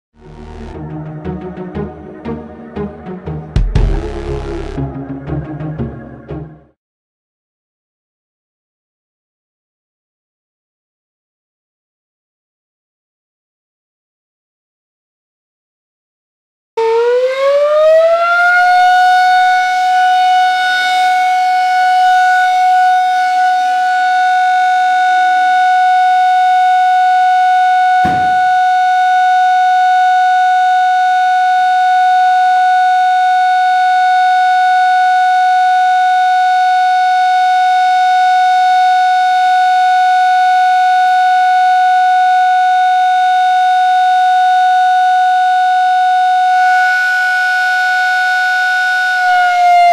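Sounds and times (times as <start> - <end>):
alarm siren: 0.2 - 6.7, 16.8 - 49.9
knock: 28.0 - 28.7.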